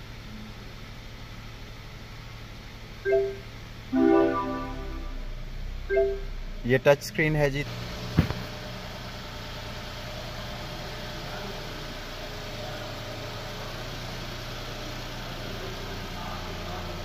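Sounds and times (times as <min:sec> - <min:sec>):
car engine idling: 0:07.5 - 0:17.0.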